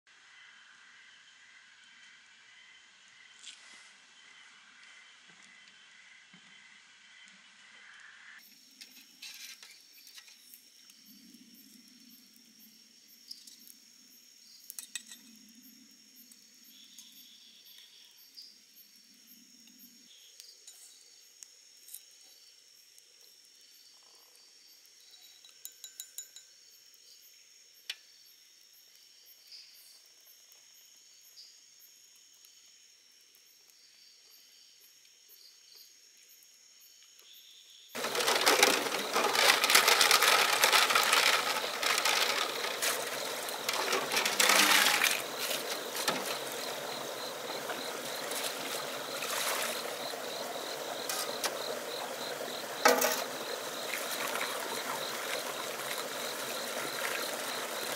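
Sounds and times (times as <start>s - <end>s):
night insects chirping: 0.1s - 57.9s
running stream water splashing: 38.0s - 57.9s.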